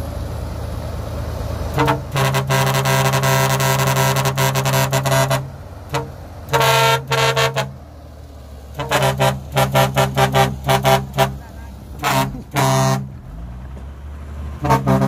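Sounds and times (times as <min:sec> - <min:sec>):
low engine rumble: 0:00.0 - 0:15.0
vehicle horn tooting: 0:01.7 - 0:07.7, 0:08.8 - 0:13.1, 0:14.6 - 0:15.0.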